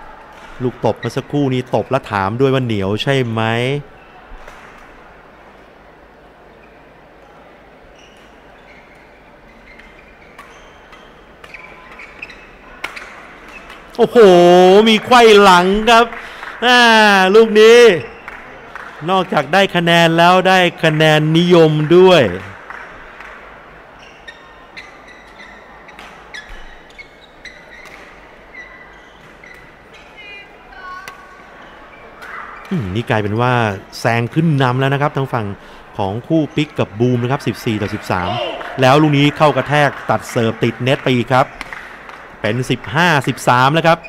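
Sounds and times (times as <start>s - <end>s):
shoes squeaking on court floor: 7.8s - 16.0s, 18.0s - 18.6s, 24.0s - 33.0s.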